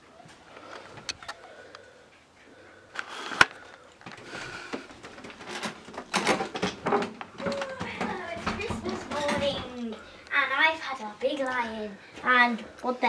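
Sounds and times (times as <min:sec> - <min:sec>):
rustling and bumps: 0:03.2 - 0:09.9.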